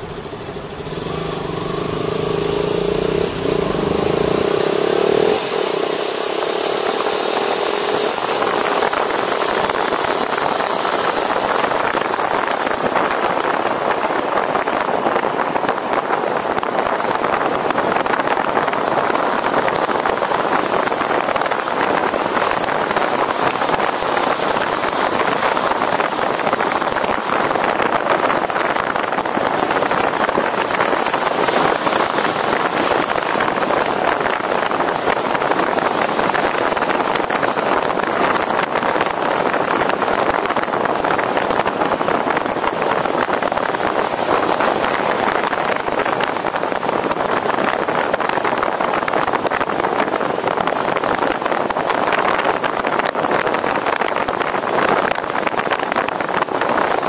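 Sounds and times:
airflow and road noise: 0:00.0 - 0:57.0.

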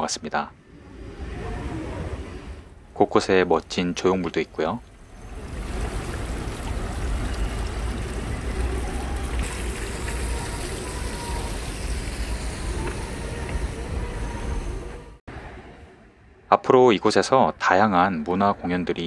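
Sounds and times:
water trickling over fountain: 0:02.9 - 0:13.8.

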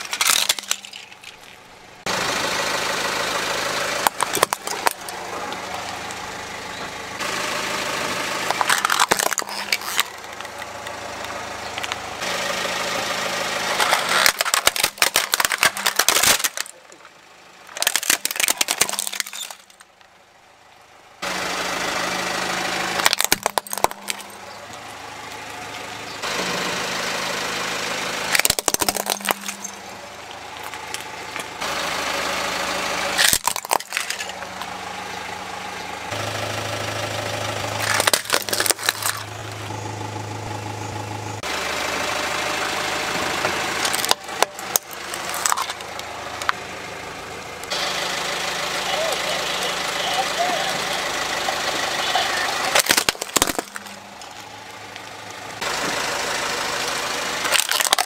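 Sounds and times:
plastic cracking and crunching: 0:00.0 - 0:01.7, 0:04.0 - 0:05.2, 0:08.5 - 0:10.7, 0:13.7 - 0:17.1, 0:17.7 - 0:20.1, 0:23.0 - 0:24.8, 0:28.3 - 0:29.8, 0:33.2 - 0:34.6, 0:37.8 - 0:39.3, 0:43.8 - 0:46.6, 0:52.7 - 0:55.1, 0:57.4 - 0:58.0
car engine running at low speed: 0:00.0 - 0:58.0.

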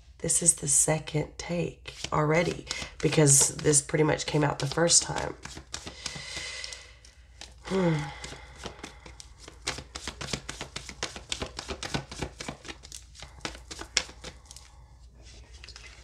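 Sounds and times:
cards being shuffled: 0:01.9 - 0:06.8, 0:07.4 - 0:14.7.

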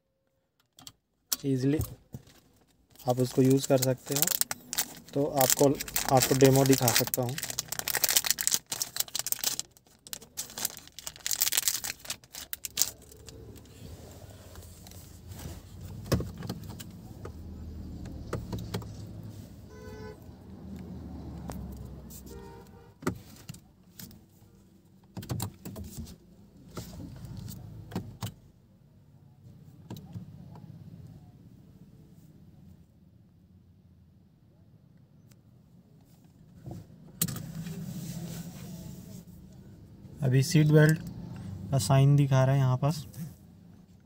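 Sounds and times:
plastic packet crinkling: 0:03.0 - 0:13.4.

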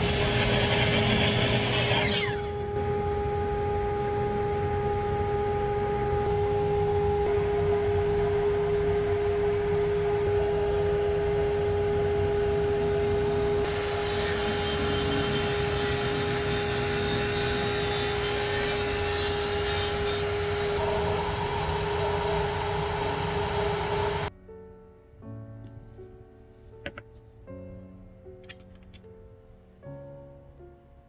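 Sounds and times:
saw blade rasping through wood: 0:00.0 - 0:02.5, 0:13.7 - 0:21.0
table saw whining: 0:00.0 - 0:07.3, 0:11.7 - 0:24.3.

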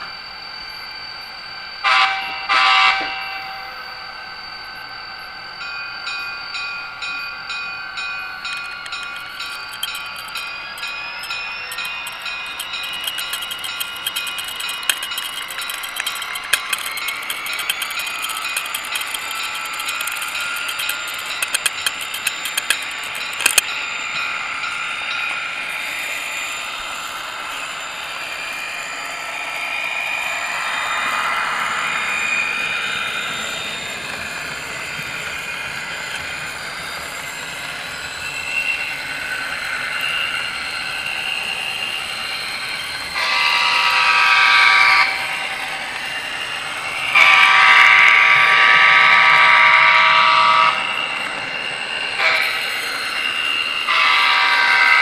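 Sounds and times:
model train running: 0:00.0 - 0:55.0
loud train horn: 0:01.8 - 0:03.7, 0:43.2 - 0:45.4, 0:47.1 - 0:50.9, 0:52.2 - 0:52.7, 0:53.8 - 0:55.0
sharp clicks: 0:08.4 - 0:23.7.

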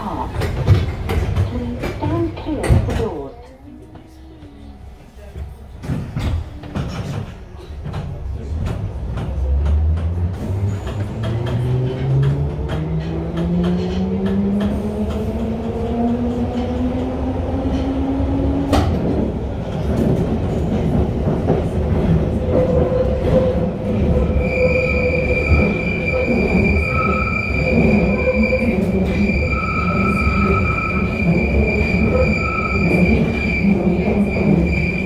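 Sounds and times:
wheels rumbling in tunnel: 0:00.0 - 0:35.0
high-pitched wheel squeal: 0:24.2 - 0:35.0.

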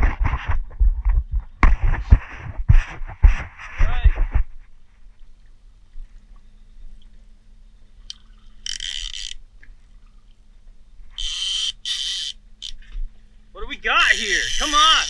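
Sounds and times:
outboard motor humming: 0:11.2 - 0:15.0
rasping noise bursts: 0:14.0 - 0:15.0.

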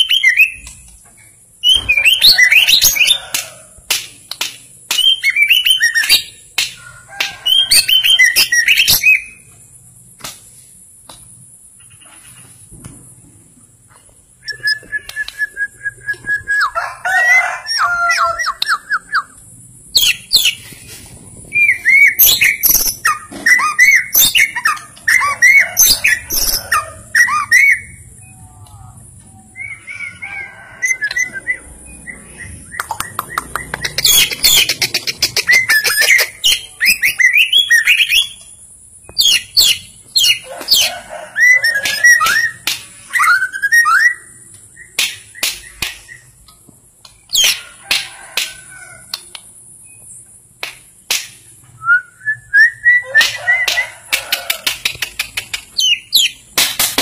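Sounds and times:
songbird singing whistled notes: 0:00.0 - 0:01.0, 0:04.9 - 0:06.4, 0:07.4 - 0:09.5, 0:14.4 - 0:16.8, 0:21.5 - 0:30.2, 0:30.8 - 0:34.8, 0:35.4 - 0:40.4, 0:41.4 - 0:46.3, 0:51.8 - 0:53.8.

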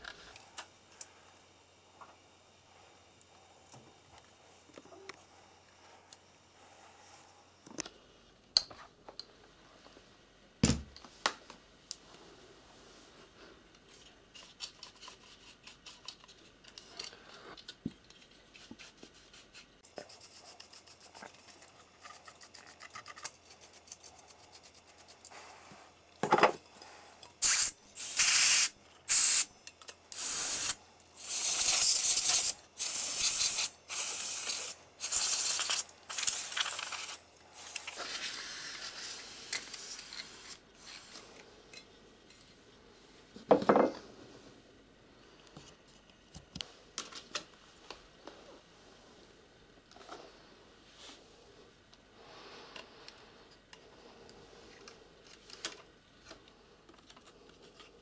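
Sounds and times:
brush scratching fan: 0:18.1 - 0:26.0
compressed air hissing bursts: 0:27.4 - 0:29.5, 0:30.1 - 0:41.3.

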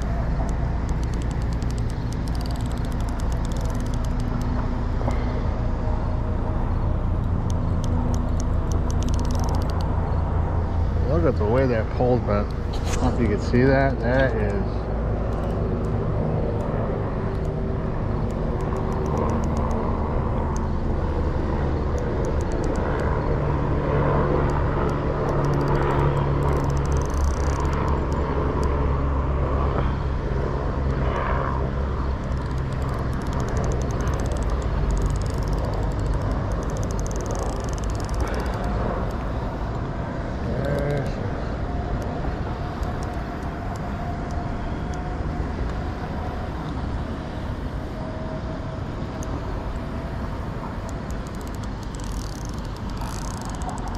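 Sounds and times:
faint ticks: 0:00.0 - 0:05.2, 0:24.4 - 0:28.7, 0:32.2 - 0:39.9, 0:50.8 - 0:53.9
passing traffic engine drone: 0:00.0 - 0:53.9.

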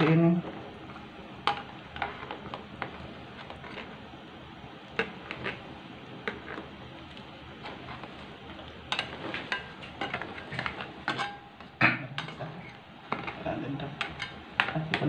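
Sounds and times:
metal spatula stirring in a wok: 0:07.6 - 0:15.0.

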